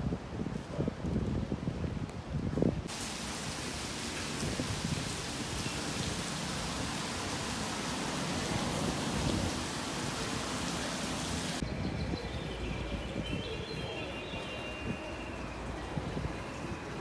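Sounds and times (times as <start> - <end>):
steady even hiss: 2.9 - 11.6.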